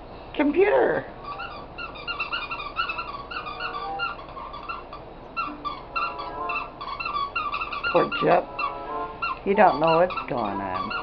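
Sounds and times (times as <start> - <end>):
dog whining: 1.2 - 11.0.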